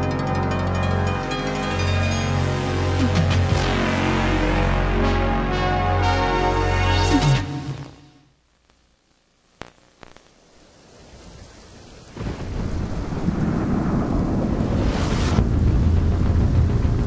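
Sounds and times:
sharp cracks: 0:09.6 - 0:10.4
rushing rumbling noise: 0:12.2 - 0:17.0.

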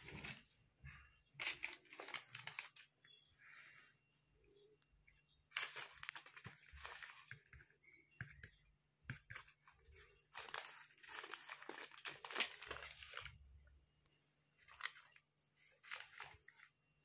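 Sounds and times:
wrapper crinkling: 0:01.4 - 0:02.9, 0:05.5 - 0:07.3, 0:10.2 - 0:13.4, 0:14.6 - 0:16.7.

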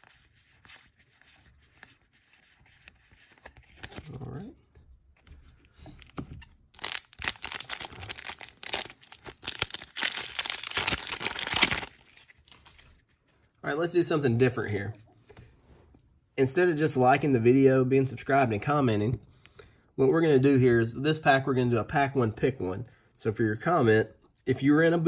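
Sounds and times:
foil wrapper crinkling and tearing: 0:06.7 - 0:13.0.

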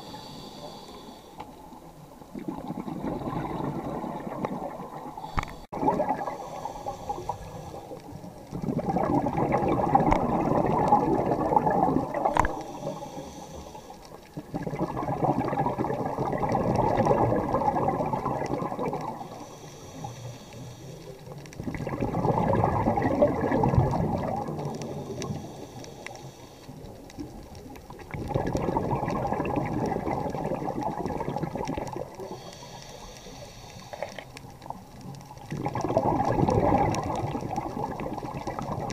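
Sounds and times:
diver breathing through regulator: 0:00.0 - 0:01.6, 0:05.0 - 0:08.3, 0:12.4 - 0:14.3, 0:19.2 - 0:21.4, 0:24.5 - 0:27.0, 0:32.2 - 0:34.4
exhaled bubbles rushing: 0:02.2 - 0:13.0, 0:14.1 - 0:19.4, 0:21.2 - 0:25.6, 0:26.8 - 0:32.4, 0:34.6 - 0:38.9.

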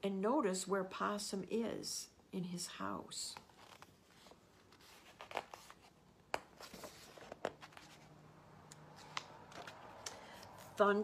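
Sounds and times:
paper rustling: 0:03.4 - 0:08.2, 0:08.8 - 0:10.7.

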